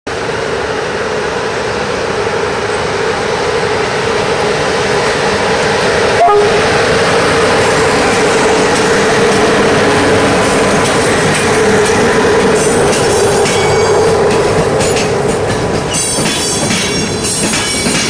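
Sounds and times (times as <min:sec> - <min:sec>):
electric locomotive humming: 0:00.1 - 0:18.0
train rolling noise: 0:00.1 - 0:18.0
short tone: 0:06.2 - 0:06.9.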